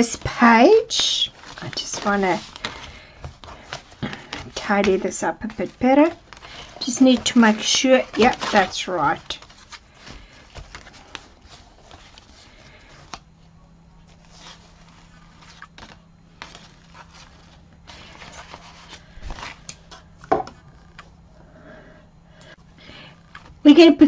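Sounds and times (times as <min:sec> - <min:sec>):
paper rustling and sliding: 0:01.3 - 0:13.3, 0:14.0 - 0:21.0.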